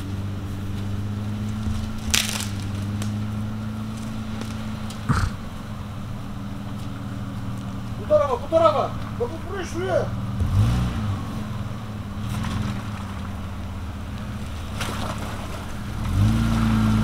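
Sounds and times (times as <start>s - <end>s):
engine running at low revs: 0.0s - 17.0s
sharp crack: 1.4s - 5.6s.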